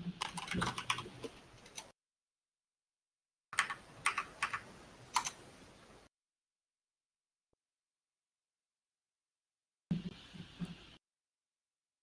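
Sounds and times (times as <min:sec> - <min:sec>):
keyboard typing: 0:00.2 - 0:01.9, 0:03.5 - 0:05.4.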